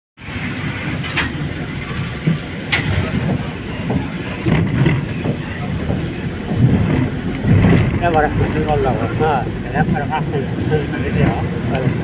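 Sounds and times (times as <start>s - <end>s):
engine and tyre rumble: 0.2s - 12.0s
rattles and knocks: 0.9s - 10.3s.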